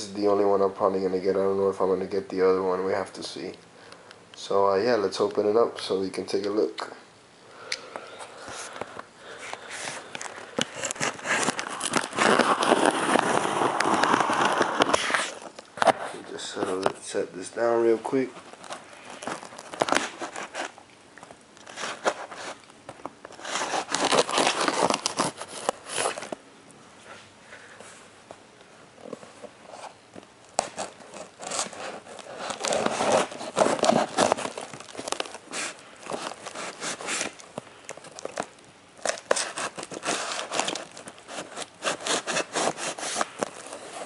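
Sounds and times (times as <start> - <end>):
package tearing and rustling: 8.4 - 17.0, 18.1 - 26.4, 29.0 - 44.0.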